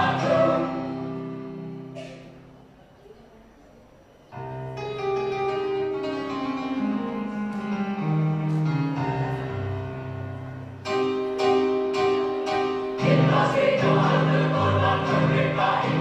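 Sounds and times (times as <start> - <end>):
choir singing chord: 0.0 - 2.0, 12.8 - 16.0
keyboard melody: 0.0 - 2.0, 4.4 - 16.0.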